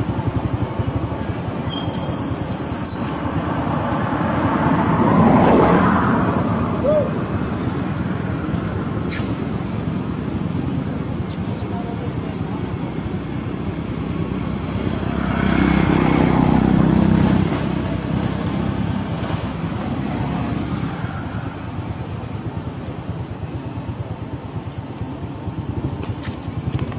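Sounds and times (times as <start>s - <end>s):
outdoor background hum: 0.0s - 26.9s
motor vehicle passing: 1.2s - 22.6s.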